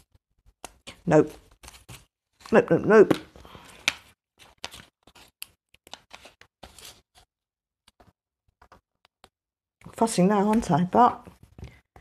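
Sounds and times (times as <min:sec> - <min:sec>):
paper rustling: 0:00.6 - 0:02.6, 0:03.5 - 0:07.3.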